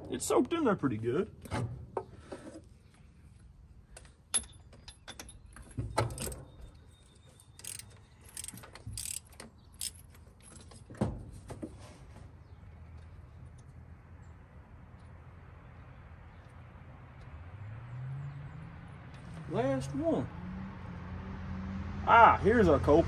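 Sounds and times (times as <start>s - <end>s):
socket ratchet clicking: 7.6s - 10.0s.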